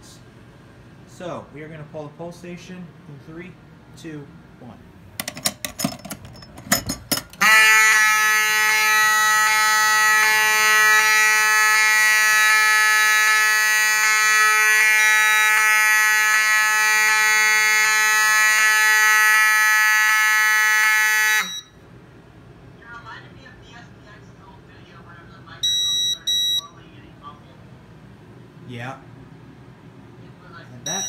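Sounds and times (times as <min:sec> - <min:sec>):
pull station clicks and knocks: 0:05.2 - 0:07.4
fire alarm horn buzzing: 0:07.3 - 0:21.8, 0:25.6 - 0:26.7.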